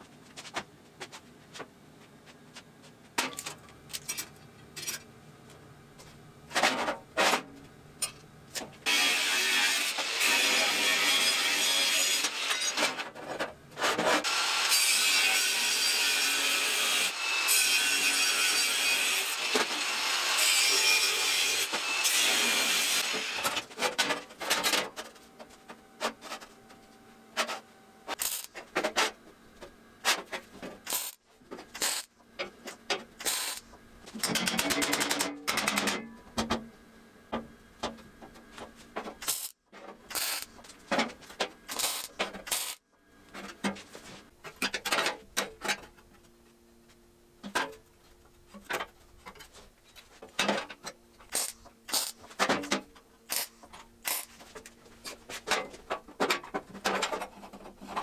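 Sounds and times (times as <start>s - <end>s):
welder crackling: 28.1s - 28.7s, 30.8s - 32.1s, 33.2s - 33.8s, 39.2s - 40.6s, 41.7s - 42.8s, 51.3s - 52.3s, 53.3s - 54.3s.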